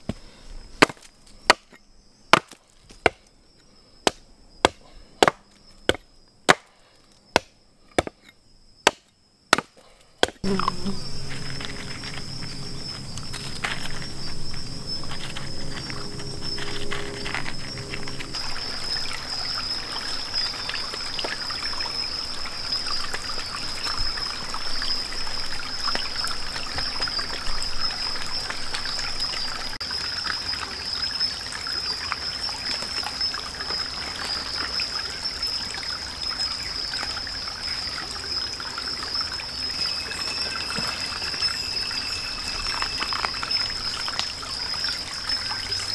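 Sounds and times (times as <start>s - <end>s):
stream trickling over stones: 10.4s - 45.9s
high-pitched drone: 10.5s - 18.4s.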